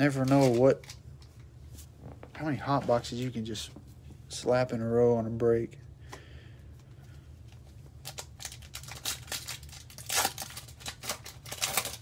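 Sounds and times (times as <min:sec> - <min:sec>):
wrapper tearing: 0:00.0 - 0:01.0, 0:08.0 - 0:12.0
wrapper crinkling: 0:00.0 - 0:01.2, 0:07.9 - 0:12.0.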